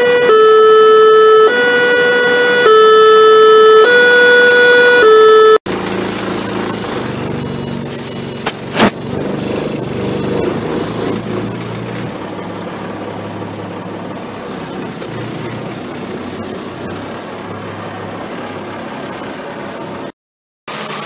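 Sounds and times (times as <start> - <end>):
diesel truck engine running: 5.7 - 20.1.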